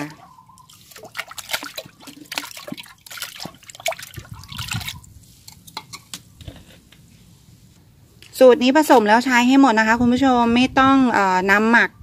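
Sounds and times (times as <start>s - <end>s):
liquid splashing in plastic bucket: 0.0s - 5.1s
water trickling from jar: 0.0s - 5.1s.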